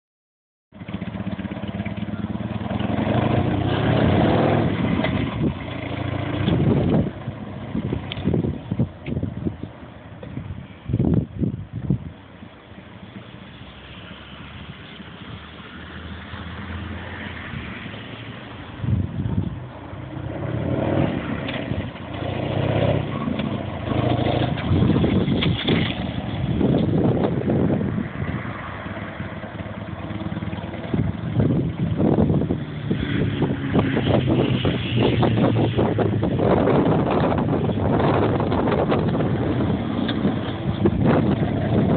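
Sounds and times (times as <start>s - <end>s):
motorcycle engine running: 0.7s - 9.6s, 29.2s - 41.9s.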